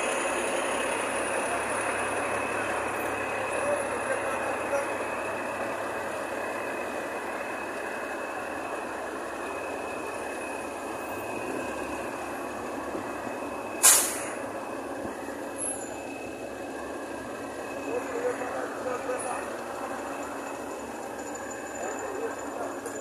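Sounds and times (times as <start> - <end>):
diesel engines of paving machinery: 0.0 - 23.0
short loud hiss: 13.8 - 14.4.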